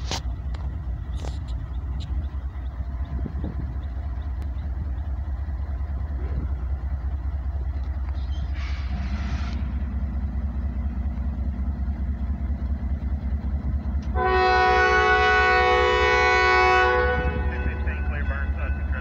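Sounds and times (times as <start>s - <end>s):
diesel locomotives rumbling: 0.0s - 19.0s
locomotive air horn blast: 14.1s - 18.2s.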